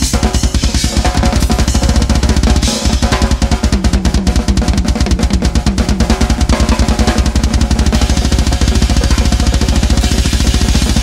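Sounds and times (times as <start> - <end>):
rapid bass drum strokes: 0.0 - 11.0
snare and tom hits: 0.0 - 11.0
cymbal crash: 8.0 - 11.0.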